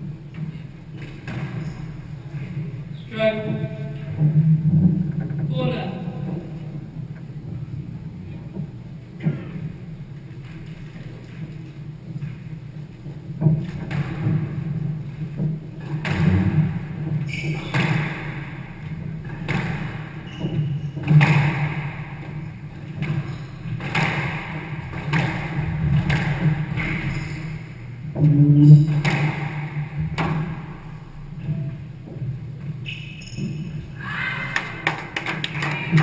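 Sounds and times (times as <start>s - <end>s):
squash ball hitting rackets and walls: 0.3s - 2.7s, 13.4s - 31.2s.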